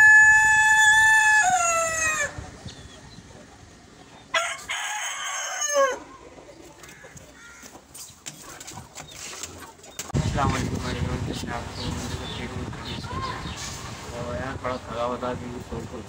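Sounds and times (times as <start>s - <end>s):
rooster crowing: 0.0s - 2.4s, 4.3s - 6.1s.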